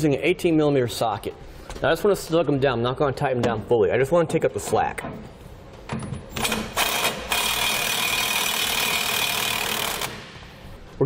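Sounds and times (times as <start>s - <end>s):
impact wrench whining: 5.9s - 10.9s.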